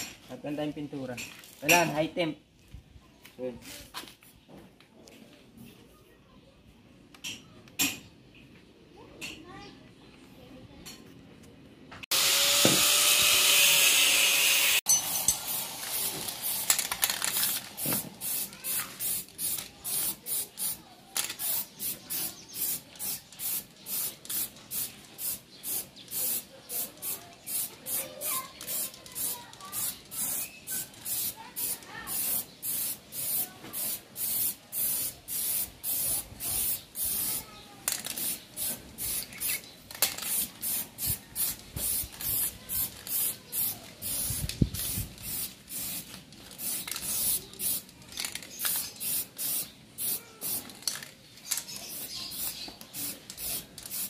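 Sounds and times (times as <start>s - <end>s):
spray can hissing in bursts: 12.1s - 54.0s.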